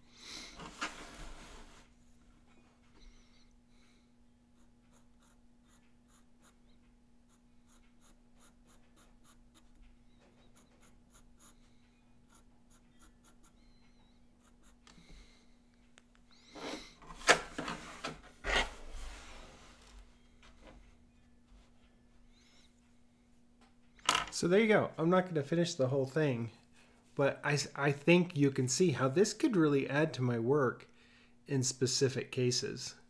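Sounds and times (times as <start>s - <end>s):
faint steady hum: 0.0s - 33.0s
paper sliding on wooden desk: 0.6s - 1.9s
pencil scratching on paper: 4.5s - 15.0s.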